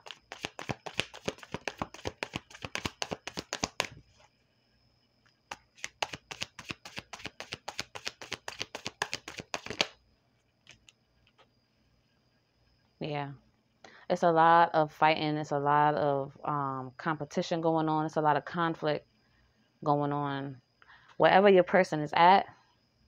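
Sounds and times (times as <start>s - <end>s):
cards being shuffled: 0.0s - 4.0s, 5.5s - 10.0s, 10.7s - 10.9s.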